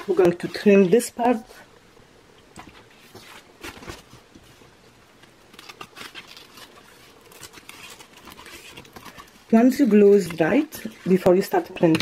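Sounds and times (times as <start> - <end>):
paper crackling: 5.4 - 12.0.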